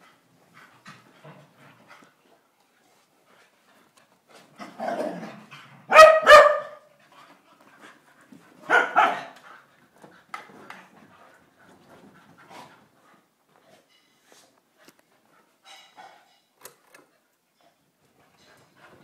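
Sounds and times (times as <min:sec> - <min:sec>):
dog growling: 0:04.6 - 0:05.5
dogs barking: 0:05.9 - 0:06.9, 0:08.7 - 0:09.4
dogs scuffling: 0:07.2 - 0:16.3.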